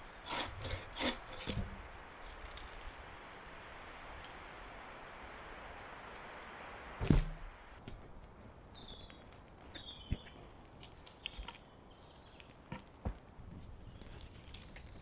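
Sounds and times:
log thudding on ground: 7.0s - 8.0s
birds chirping: 8.1s - 15.0s.

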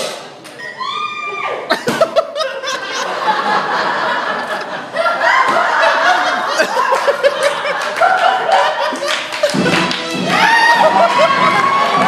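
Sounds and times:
audience laughing: 1.7s - 12.0s.

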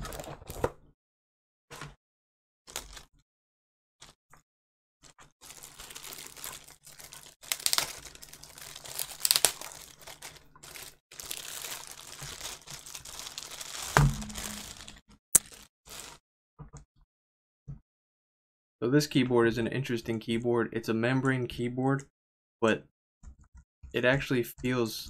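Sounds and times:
plastic bag crinkling: 2.7s - 3.1s, 5.0s - 16.2s.

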